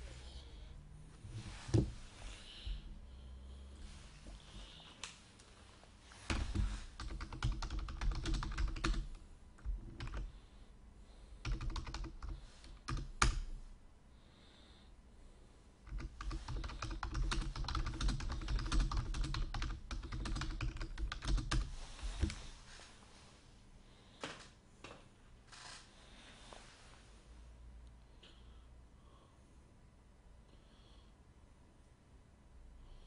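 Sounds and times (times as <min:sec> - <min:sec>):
computer keyboard typing: 0:06.3 - 0:10.3, 0:11.4 - 0:13.5, 0:15.9 - 0:21.7.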